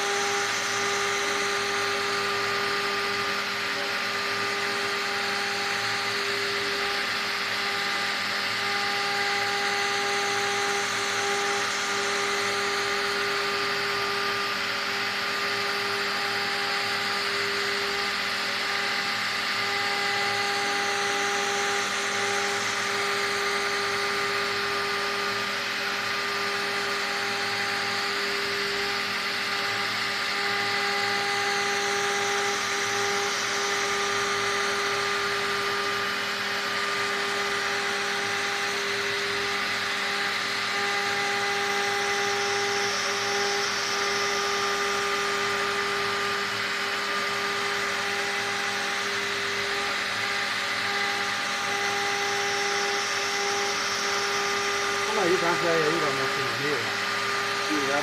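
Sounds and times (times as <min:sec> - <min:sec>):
bit cutting into wood: 0:00.0 - 0:58.0
engraving machine spindle whine: 0:00.0 - 0:58.0.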